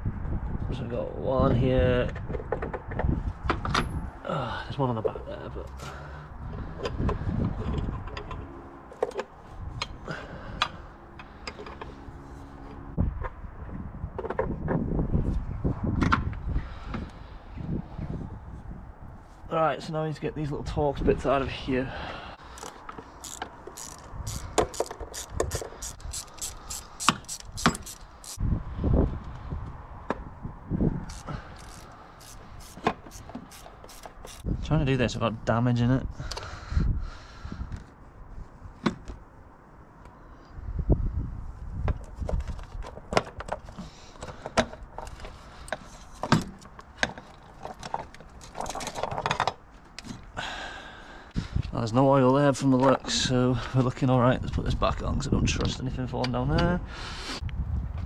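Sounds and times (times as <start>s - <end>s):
ratchet clicking: 22.5s - 28.4s, 31.1s - 34.5s
sharp metallic clicks: 22.5s - 28.4s.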